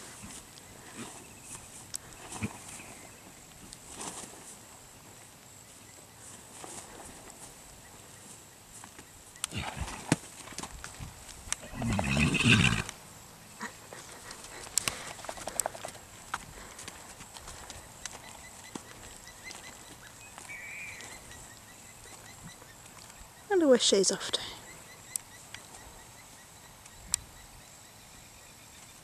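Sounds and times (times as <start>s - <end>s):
horse rolling on soft ground: 0.0s - 5.1s, 6.2s - 13.0s
horse vocalization: 2.1s - 2.8s, 9.4s - 10.2s, 11.5s - 13.0s.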